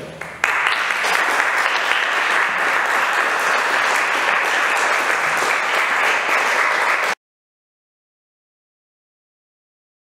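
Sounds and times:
audience applauding: 0:00.2 - 0:07.2.

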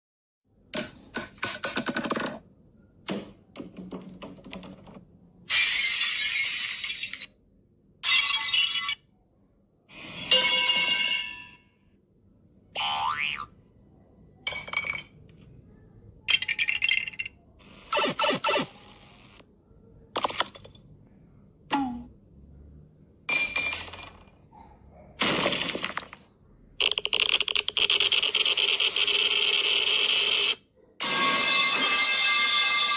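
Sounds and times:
harsh crackling noise with high tones: 0:17.6 - 0:19.5.

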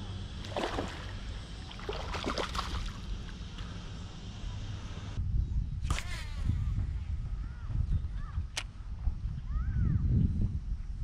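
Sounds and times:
wind rumbling on microphone: 0:05.0 - 0:11.0.

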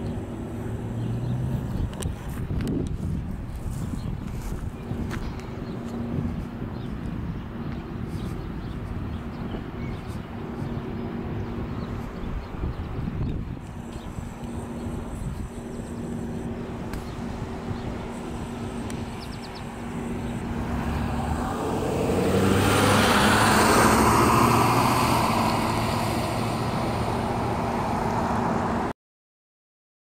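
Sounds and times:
vehicle driving past: 0:00.0 - 0:02.4, 0:14.1 - 0:28.9.

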